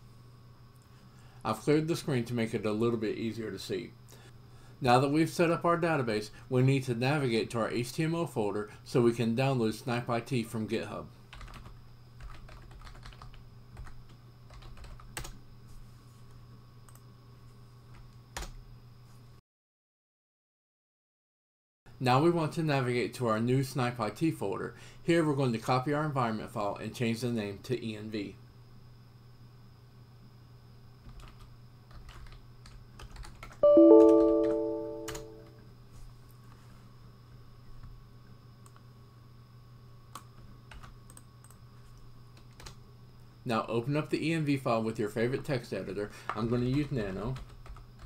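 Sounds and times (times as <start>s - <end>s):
keyboard typing: 11.3s - 15.3s, 31.1s - 35.5s
ringing chord: 33.6s - 35.6s
low steady hum: 33.6s - 36.2s.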